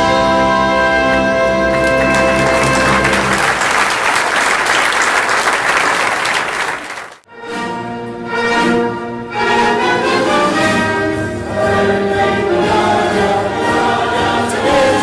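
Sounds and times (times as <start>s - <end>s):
audience applauding: 1.7s - 7.2s.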